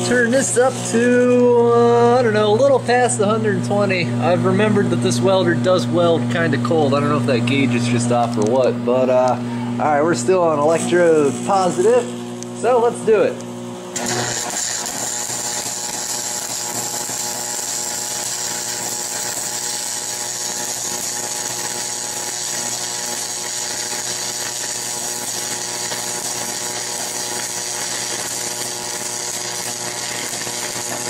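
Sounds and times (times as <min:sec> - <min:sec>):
welding arc crackling and hissing: 0:09.8 - 0:13.2, 0:13.9 - 0:31.0.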